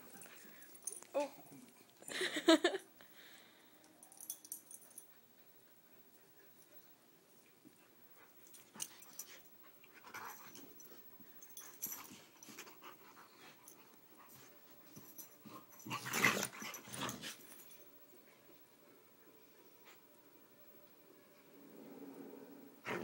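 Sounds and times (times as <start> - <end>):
dogs play-growling: 8.2 - 17.8, 21.4 - 23.0.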